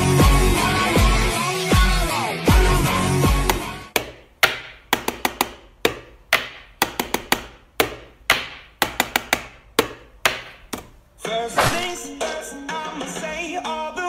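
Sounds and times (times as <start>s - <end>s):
sharp rhythmic knocks: 3.5s - 10.8s.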